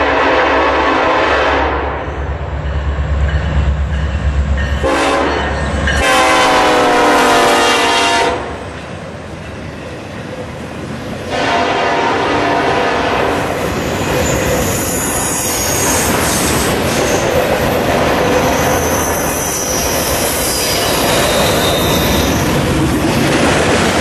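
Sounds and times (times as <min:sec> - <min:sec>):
locomotive horn: 0:00.0 - 0:02.1, 0:04.8 - 0:08.6, 0:11.3 - 0:13.5.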